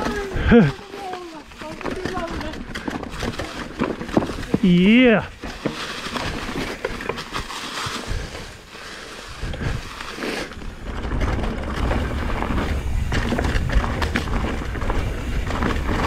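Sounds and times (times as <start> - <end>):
bike rattling and knocking: 0.0 - 16.0
bike tyres rolling on rocks: 0.0 - 16.0.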